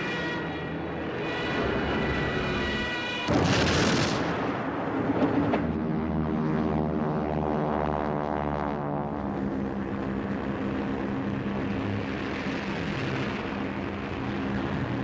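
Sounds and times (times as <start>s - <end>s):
aircraft engine drone: 0.0s - 15.0s
dive-bomber engine drone: 0.0s - 15.0s
bomb explosion: 3.3s - 5.8s.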